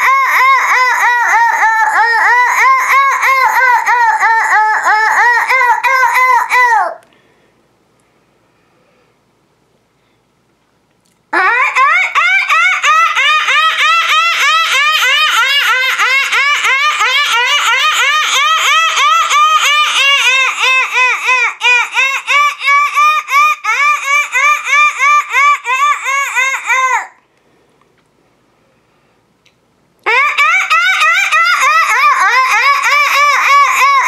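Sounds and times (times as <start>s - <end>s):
woman making dolphin-like calls: 11.3s - 21.3s, 30.0s - 34.0s.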